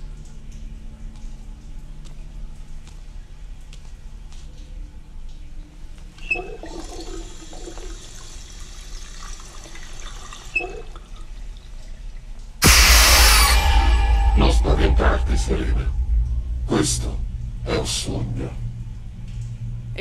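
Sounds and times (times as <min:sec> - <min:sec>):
water running: 0:05.9 - 0:12.6.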